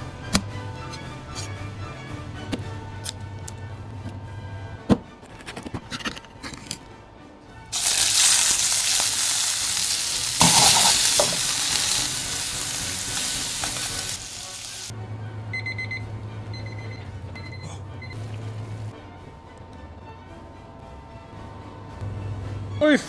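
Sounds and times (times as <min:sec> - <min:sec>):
seafood sizzling in a wok: 0:07.7 - 0:14.9
kitchen timer beeping: 0:15.5 - 0:18.2.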